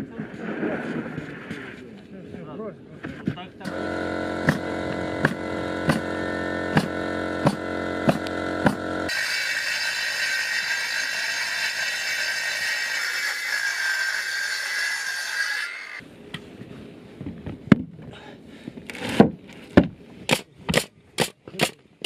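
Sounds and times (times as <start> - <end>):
pneumatic nailer firing nails: 3.7 - 11.0
circular saw cutting: 3.7 - 16.0.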